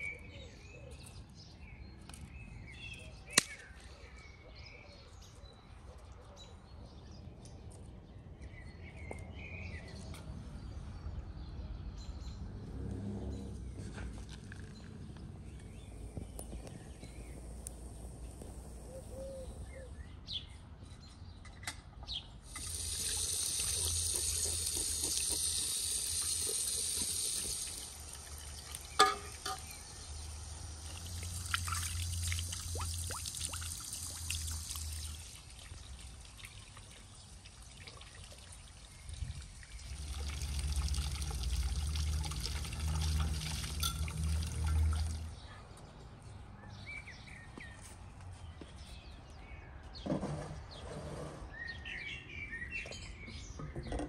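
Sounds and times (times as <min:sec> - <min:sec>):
water pouring into a basin: 0:22.5 - 0:45.4.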